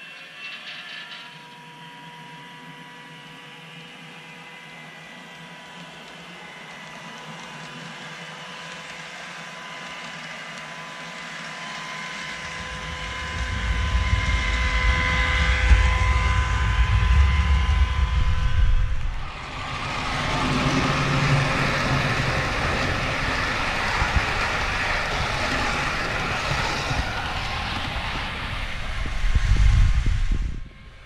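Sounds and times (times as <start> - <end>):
model train motor whine: 0.0 - 31.0
rushing rolling noise: 12.1 - 31.0
low rumble: 12.2 - 31.0.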